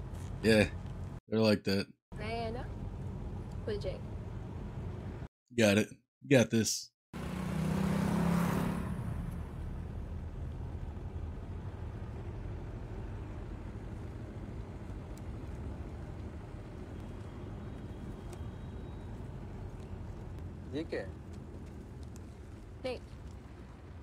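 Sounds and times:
car engine and road noise: 0.0s - 1.2s, 2.2s - 5.3s, 7.2s - 24.0s.

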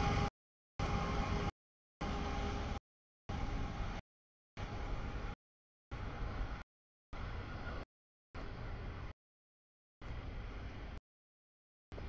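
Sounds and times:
freight train rumbling past: 0.0s - 2.8s.

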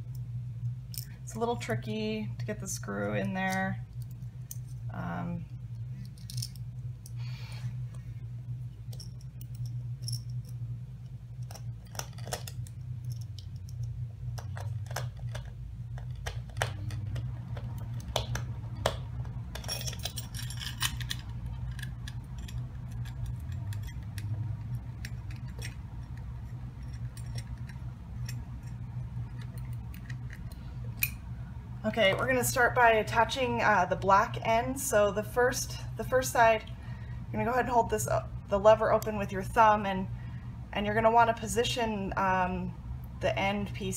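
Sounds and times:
steady low hum: 0.0s - 43.9s
hands handling parts: 11.4s - 31.2s.

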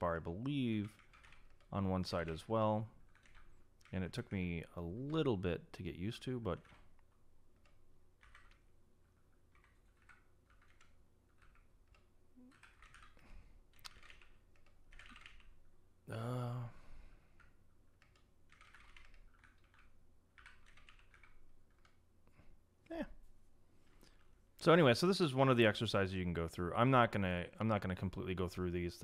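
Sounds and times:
keyboard typing clicks: 3.1s - 4.0s, 6.6s - 15.5s, 17.4s - 22.0s
short vocal sound: 16.1s - 16.9s.

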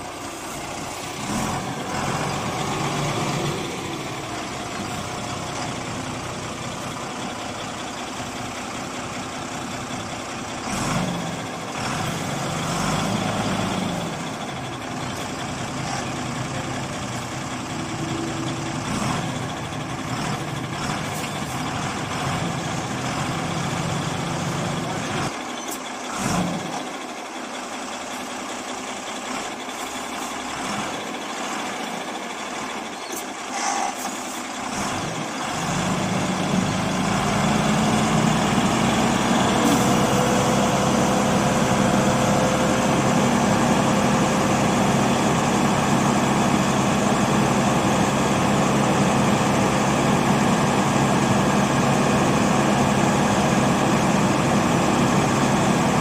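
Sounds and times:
diesel truck engine running: 0.0s - 56.0s.

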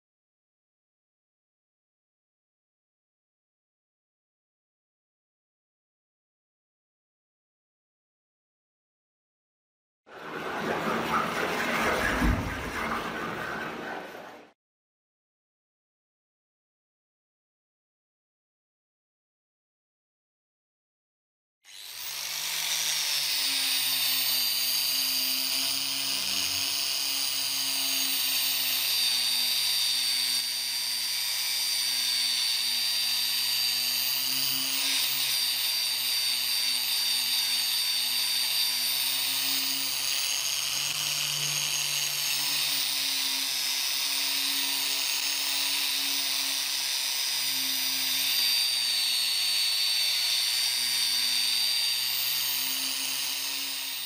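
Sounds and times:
electric drill motor whine: 21.7s - 54.0s.

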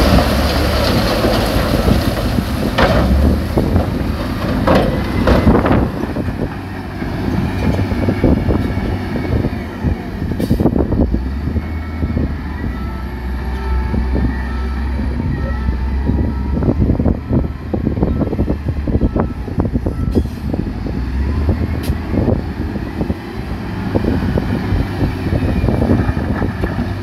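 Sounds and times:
heavy machinery diesel engine: 0.0s - 27.0s
rock knocking and clattering: 0.9s - 6.2s.

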